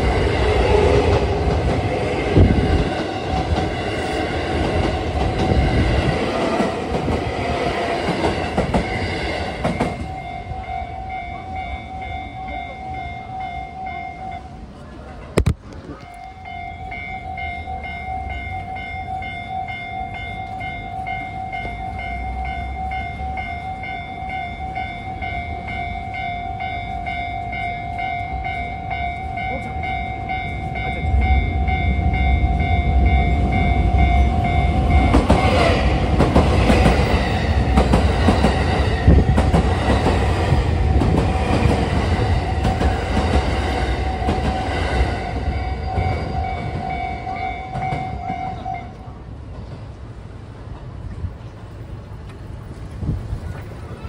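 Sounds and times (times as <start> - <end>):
train wheels clacking over rails: 0.0 - 10.4, 27.4 - 48.7
train rumbling: 0.0 - 54.0
level crossing bell ringing: 9.8 - 14.6, 16.1 - 35.2.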